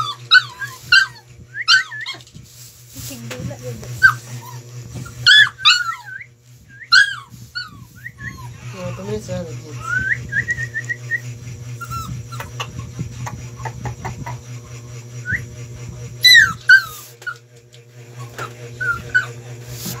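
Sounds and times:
puppy crying: 0.0 - 2.3, 4.0 - 14.5, 16.2 - 17.4, 18.2 - 20.0
puppy whimpering: 0.0 - 2.3, 4.0 - 14.5, 15.2 - 15.5, 16.2 - 17.4, 18.2 - 20.0.

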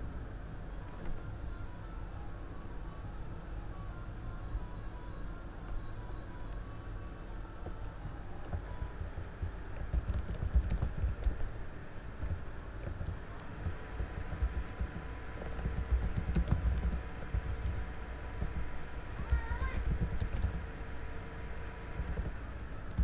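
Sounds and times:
steady low hum: 0.0 - 23.0
typing on computer keyboard: 7.8 - 11.6, 12.2 - 20.6, 22.0 - 23.0.

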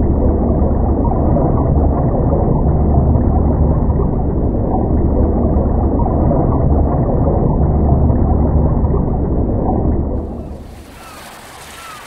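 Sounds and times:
underwater rumble of moving water: 0.0 - 12.0.

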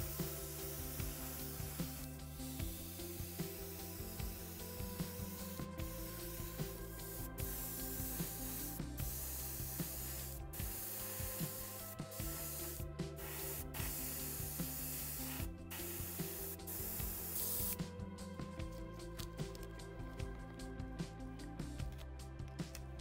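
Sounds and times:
airbrush spraying hiss: 0.0 - 17.9
background music: 0.0 - 23.0.

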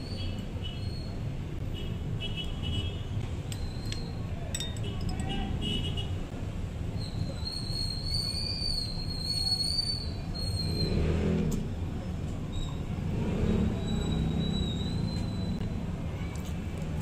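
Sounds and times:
utensil clinking on plate: 4.5 - 5.4.

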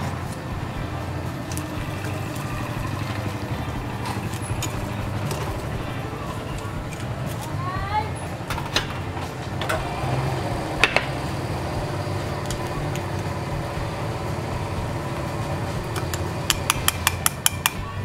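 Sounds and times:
steady low hum: 0.0 - 18.0
pestle knocking in stone mortar: 16.0 - 17.9
spoon tapping ceramic bowl: 16.0 - 17.9.

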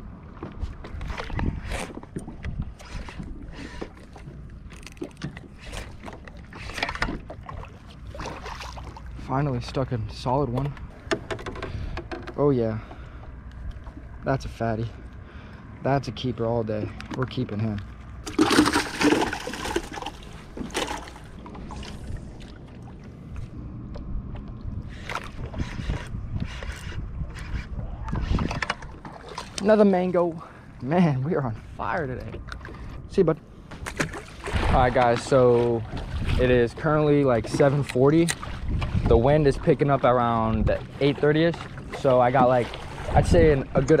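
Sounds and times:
wind rumble on microphone: 0.0 - 8.3, 21.3 - 29.6, 31.4 - 44.0
water lapping against boat hull: 0.0 - 44.0.

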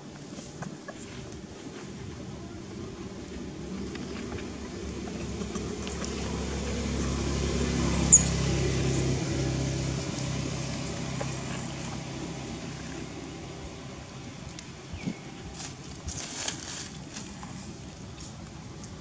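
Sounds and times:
vehicle engine passing by: 2.6 - 15.7
sharp high squeak: 8.1 - 8.4.

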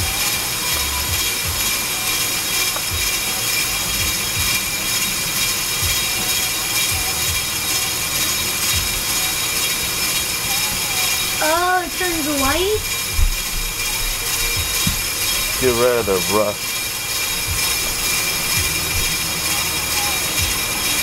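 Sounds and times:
brake lathe high whine: 0.0 - 21.0
low thumps: 11.8 - 16.7, 17.4 - 19.4.

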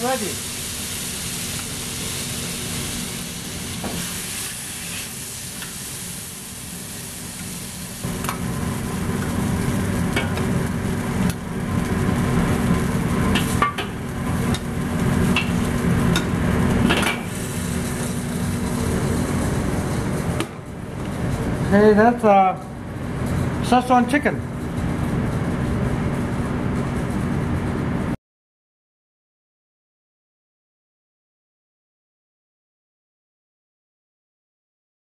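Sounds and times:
food sizzling in a wok: 0.0 - 20.2
steady low hum: 6.5 - 28.2.

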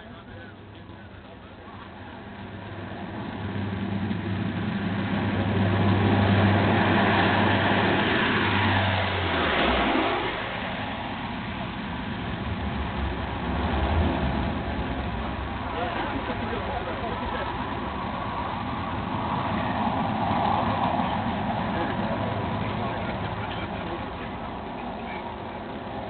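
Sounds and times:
turboprop aircraft passing overhead: 0.0 - 26.0.

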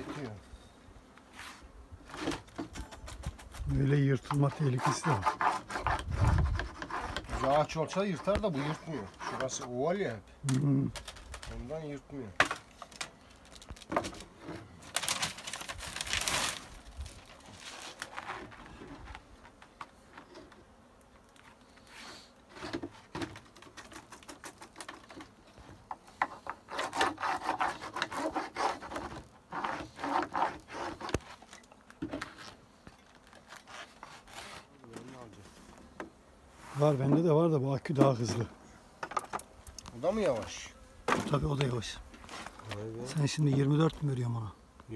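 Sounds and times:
wooden tool rubbing beeswax sheets: 1.3 - 10.0, 21.4 - 31.6, 32.2 - 35.7.

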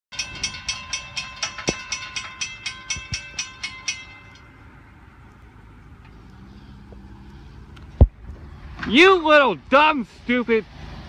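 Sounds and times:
crossing warning bell ringing: 0.1 - 5.2.

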